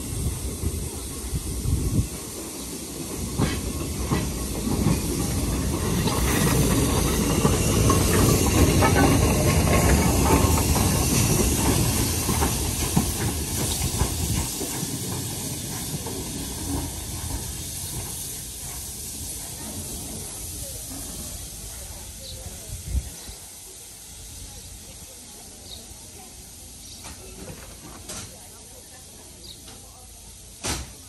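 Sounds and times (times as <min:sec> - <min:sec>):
steam hissing: 0:00.0 - 0:31.0
steam locomotive passing: 0:00.0 - 0:31.0
wheels clicking over rail joints: 0:02.8 - 0:20.0.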